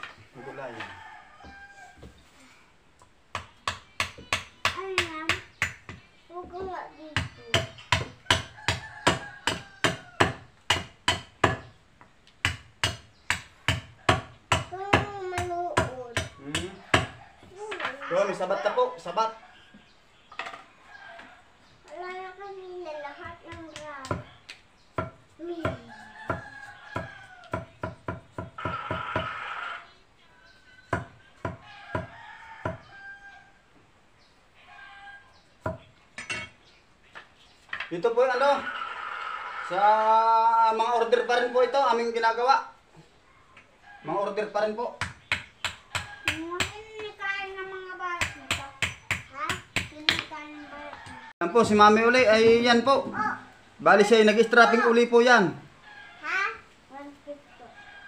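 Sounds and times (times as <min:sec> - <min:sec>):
rooster crowing: 0:00.3 - 0:02.4, 0:08.3 - 0:10.6, 0:16.6 - 0:19.7, 0:20.8 - 0:21.6, 0:25.8 - 0:27.9, 0:28.6 - 0:33.7, 0:34.6 - 0:35.4, 0:45.9 - 0:46.6, 0:50.4 - 0:51.7.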